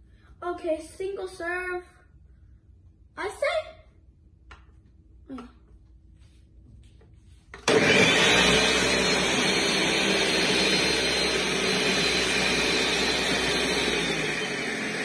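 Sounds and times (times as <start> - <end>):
blender running at high speed: 7.6 - 15.0.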